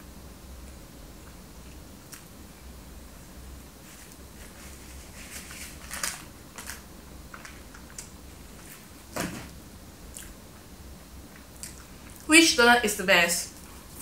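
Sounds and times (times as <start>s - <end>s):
low room hum: 0.0s - 14.0s
paper crackling: 3.9s - 8.8s
chewing: 10.1s - 10.4s.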